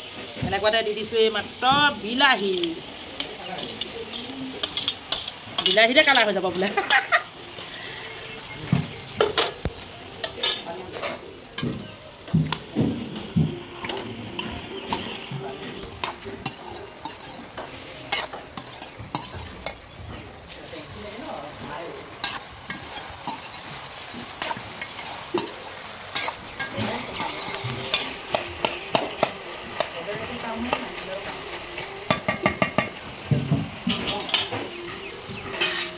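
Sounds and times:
vegetables sizzling: 0.0 - 35.9
skimmer scraping a pan: 14.1 - 35.9.

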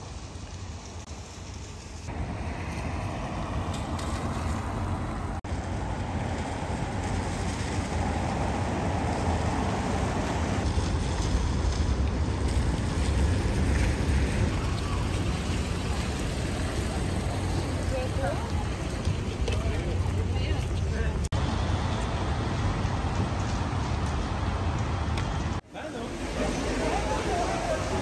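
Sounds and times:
tyre hiss on wet road: 0.0 - 5.3
low rumble of engines: 0.0 - 28.0.

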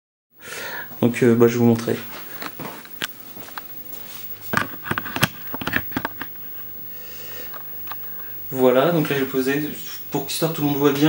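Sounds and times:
plastic case knocks and clicks: 4.5 - 6.3.

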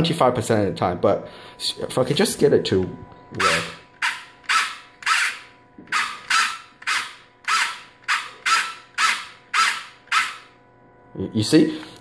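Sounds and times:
toy blaster motor whirring: 3.4 - 10.6.

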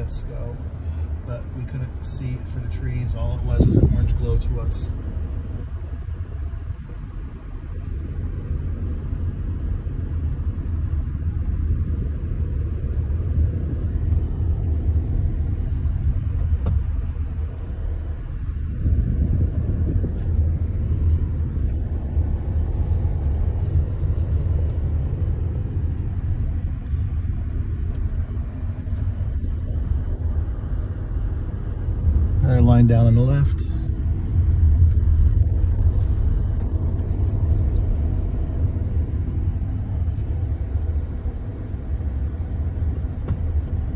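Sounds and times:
car interior road rumble: 0.0 - 43.9.

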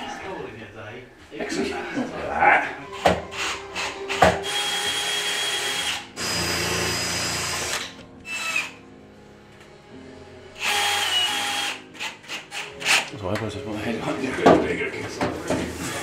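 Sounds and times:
cordless drill whirring: 3.3 - 8.8, 10.6 - 13.0.

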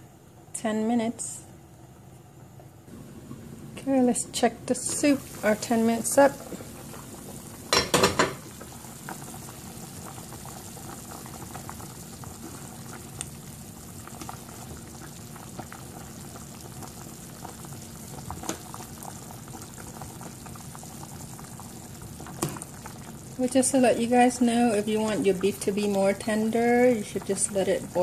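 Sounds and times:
soup bubbling in a pot: 1.5 - 28.0
pot lid clattering: 7.7 - 8.4.

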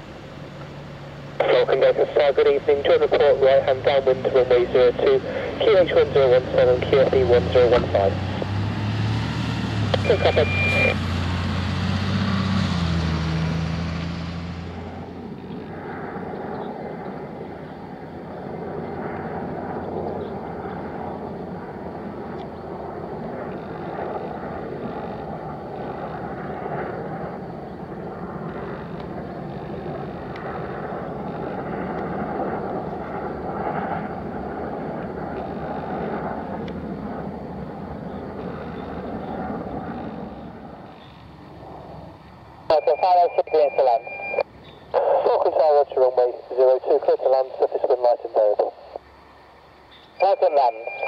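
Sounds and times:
jet aircraft flying low: 0.0 - 51.0
bus engine pulling away: 7.3 - 15.2.

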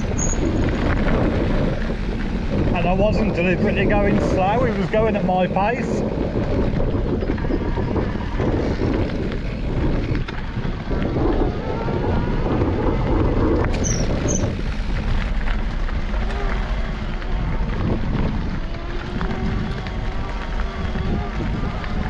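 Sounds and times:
bike tyres rolling over gravel: 0.0 - 22.0
wind buffeting microphone: 0.0 - 22.0.

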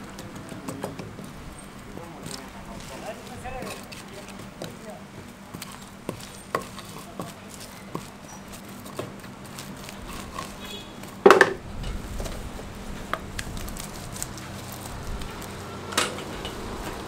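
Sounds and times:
spreader scraping on griddle: 1.3 - 11.3
utensils clattering: 13.7 - 17.0.

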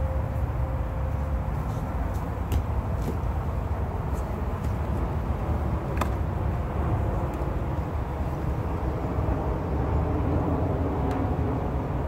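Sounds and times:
constant low rumble: 0.0 - 12.0.

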